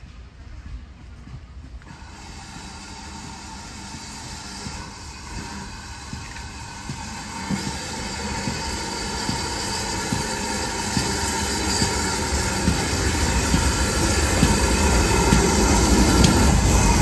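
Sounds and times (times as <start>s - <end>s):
steam locomotive approaching: 0.0s - 17.0s.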